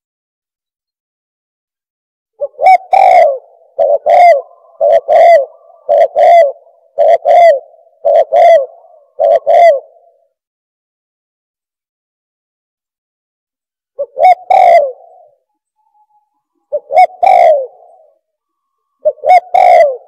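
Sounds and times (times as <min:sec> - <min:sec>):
dove cooing: 0:02.4 - 0:10.3, 0:14.0 - 0:15.5, 0:16.6 - 0:18.3, 0:18.9 - 0:20.0.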